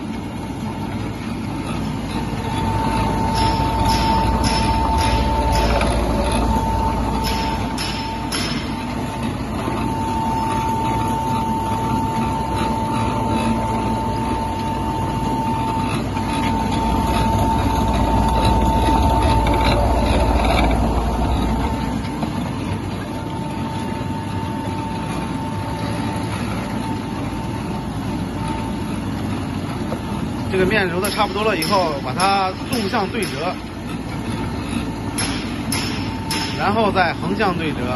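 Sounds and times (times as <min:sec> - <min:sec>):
dough sheeter high whine: 0:00.0 - 0:37.9
machine low rumble: 0:00.0 - 0:37.9.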